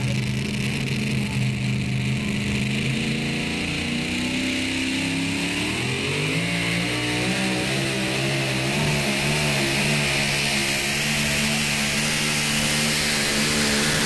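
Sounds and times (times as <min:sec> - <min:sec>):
truck engine revving: 0:00.0 - 0:14.0.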